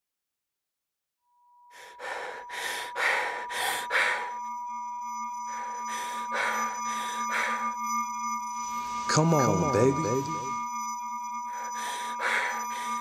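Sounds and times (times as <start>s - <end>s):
high sine tone: 3.5s - 13.0s
low steady tone: 3.5s - 13.0s.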